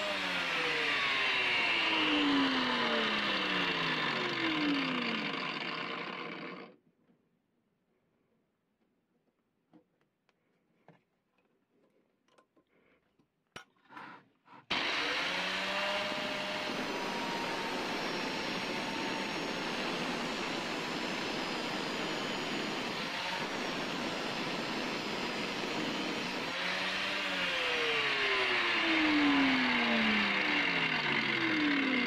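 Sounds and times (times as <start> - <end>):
angle grinder cutting metal: 0.0 - 6.7, 14.7 - 32.0.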